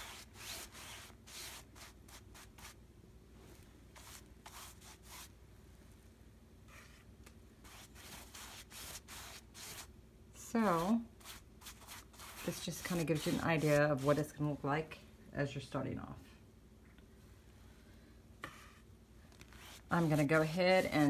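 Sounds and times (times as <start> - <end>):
paintbrush rubbing on fabric: 0.0 - 2.8, 3.5 - 5.3, 6.7 - 9.9, 10.8 - 14.3, 18.4 - 21.0.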